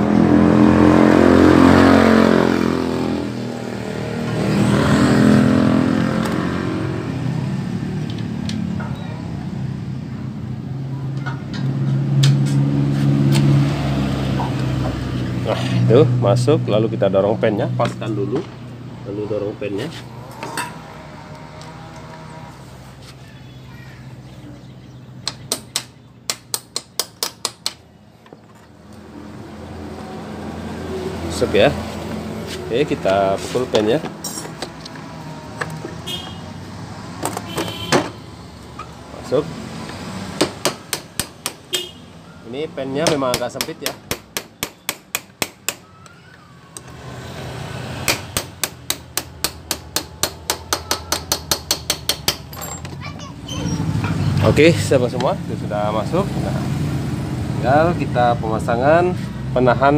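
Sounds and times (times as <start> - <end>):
sharp metal taps: 25.2 - 27.8, 48.1 - 53.0.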